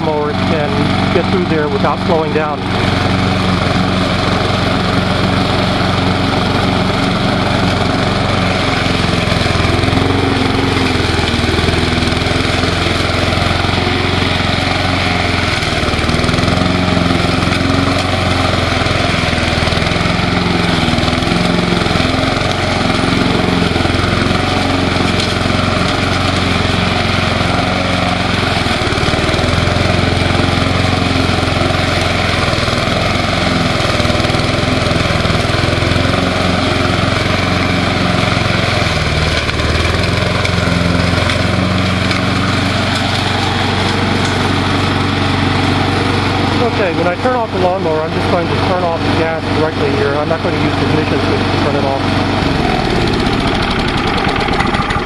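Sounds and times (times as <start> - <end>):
mower blade cutting ground cover: 0.0 - 55.0
push mower engine running: 0.0 - 55.0.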